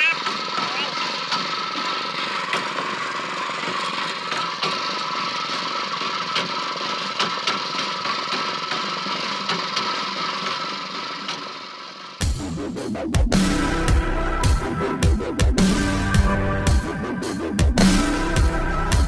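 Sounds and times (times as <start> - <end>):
boat engine running: 0.0 - 19.0.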